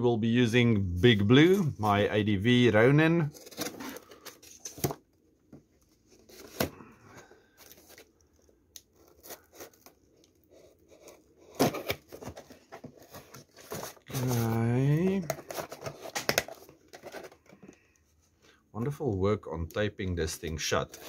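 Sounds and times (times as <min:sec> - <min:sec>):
tape tearing: 0:08.8 - 0:17.4.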